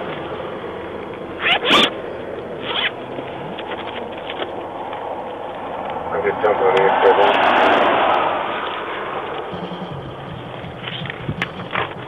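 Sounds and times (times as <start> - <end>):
highway traffic: 0.0 - 12.0
wind noise: 3.9 - 12.0.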